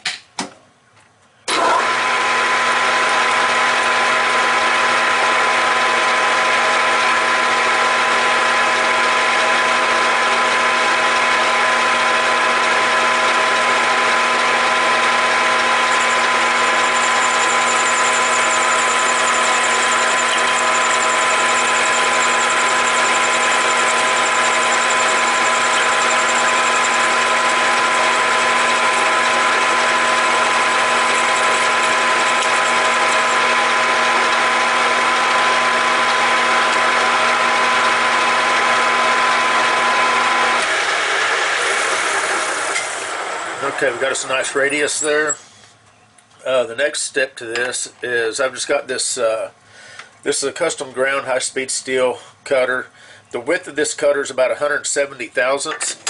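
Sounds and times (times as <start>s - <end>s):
lathe gear whine: 1.5s - 45.4s
metal lathe running: 1.6s - 45.4s
end mill cutting brass rod: 13.5s - 39.4s, 43.6s - 45.4s.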